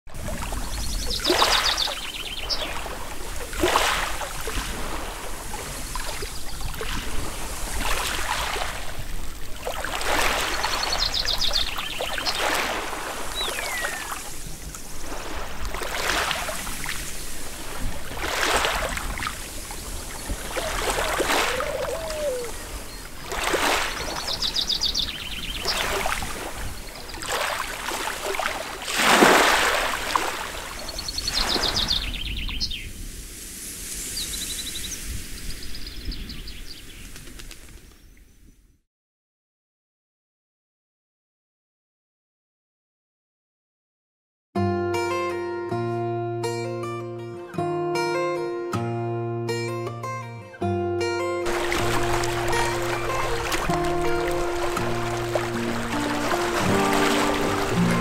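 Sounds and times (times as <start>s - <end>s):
lake waves washing on pebbles: 0.1s - 32.2s, 32.9s - 35.7s, 51.4s - 58.0s
birds chirping: 0.5s - 3.2s, 9.4s - 14.4s, 19.4s - 27.4s, 30.8s - 32.9s, 51.5s - 58.0s.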